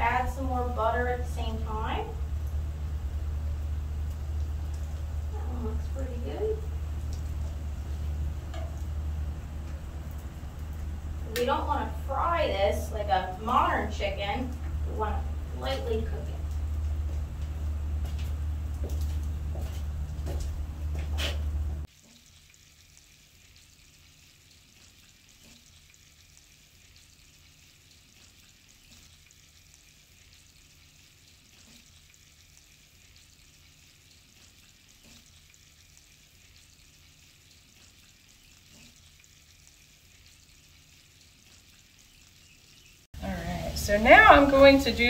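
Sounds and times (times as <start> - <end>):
chicken sizzling in a frying pan: 0.0 - 20.2, 21.2 - 45.0
low rumble with clicks: 0.0 - 21.9.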